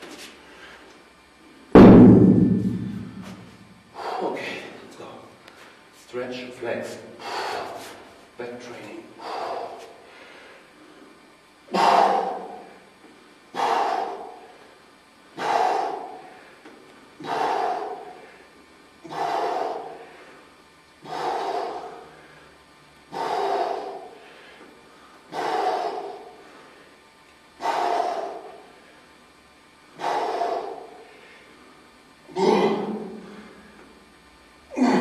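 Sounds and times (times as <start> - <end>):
man breathing out hard: 7.2 - 8.1, 9.1 - 10.8, 11.7 - 12.9, 13.5 - 27.0, 27.6 - 29.1, 29.9 - 33.9.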